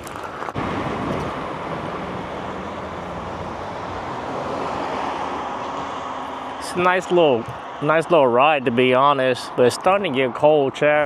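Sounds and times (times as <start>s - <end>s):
wind over microphone: 0.0s - 5.9s
tyre and road noise: 0.0s - 11.0s.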